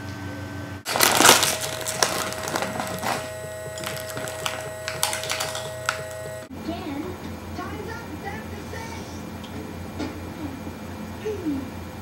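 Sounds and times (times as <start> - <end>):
low hum: 0.7 - 12.0
wrapper crinkling and crackling: 0.9 - 6.5.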